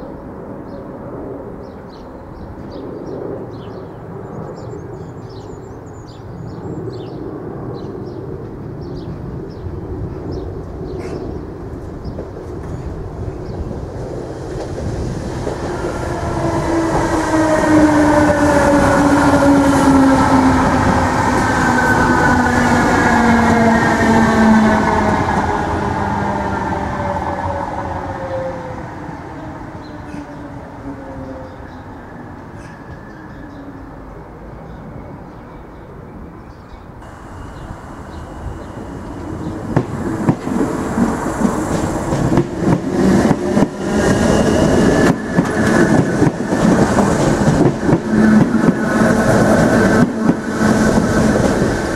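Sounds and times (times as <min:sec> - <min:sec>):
wheels rumbling on rail: 0:08.4 - 0:33.9, 0:37.0 - 0:51.9
thin high whine: 0:37.0 - 0:41.6
train traction motors whining: 0:37.0 - 0:51.9.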